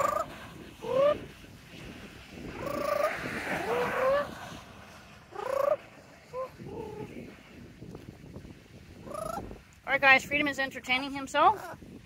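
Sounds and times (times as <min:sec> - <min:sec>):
parrot trilling calls: 0:02.6 - 0:04.2, 0:05.3 - 0:06.9, 0:09.0 - 0:09.4.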